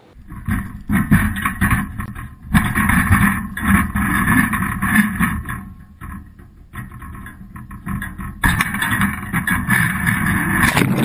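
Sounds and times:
muffled rumbling and rubbing: 0:09.2 - 0:11.0.

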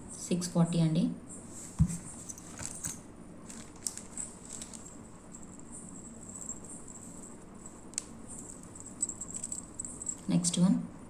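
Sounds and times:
earrings and plastic packets rustling: 0:01.6 - 0:10.3.

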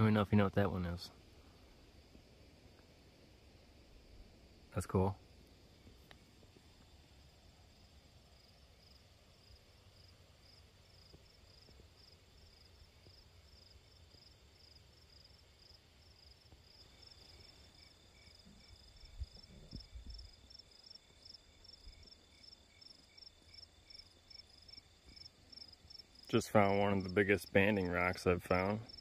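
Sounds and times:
insects chirping: 0:00.0 - 0:29.0
insect high trill: 0:16.2 - 0:29.0.

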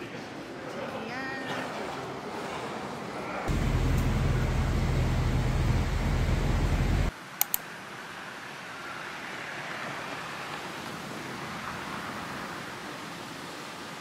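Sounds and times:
bus diesel engine idling: 0:03.5 - 0:07.1
sharp clicks: 0:07.4 - 0:07.6.

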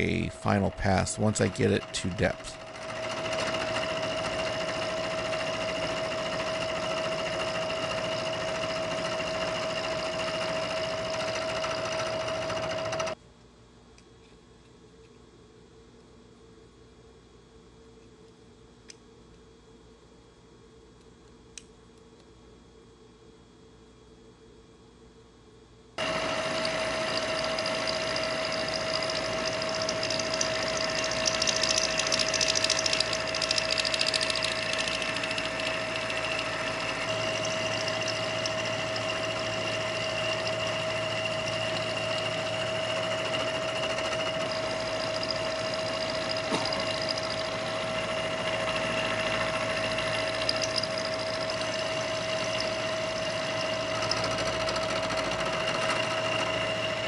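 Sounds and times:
milling machine whine: 0:00.0 - 0:13.2, 0:26.0 - 0:57.0.

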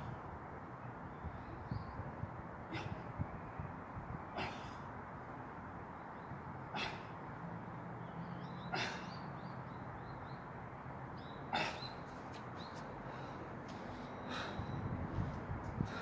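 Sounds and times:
outdoor background noise: 0:00.0 - 0:16.0
sharp forced breaths: 0:13.0 - 0:14.8.

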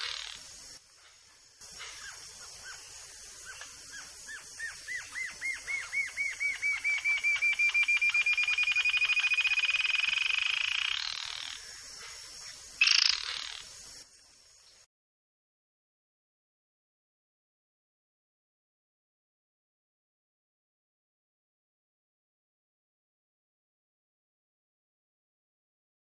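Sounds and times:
bird singing high trill: 0:03.9 - 0:11.6, 0:12.8 - 0:13.7.

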